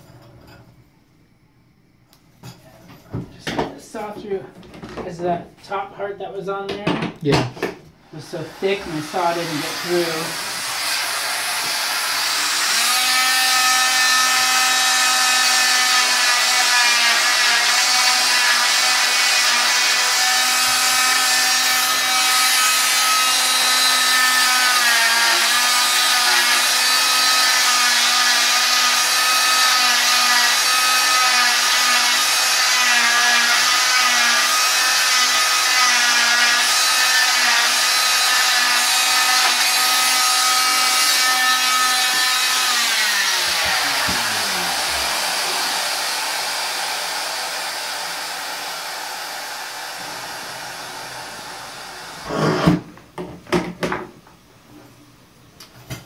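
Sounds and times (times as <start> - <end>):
cast saw whining: 8.0 - 52.8.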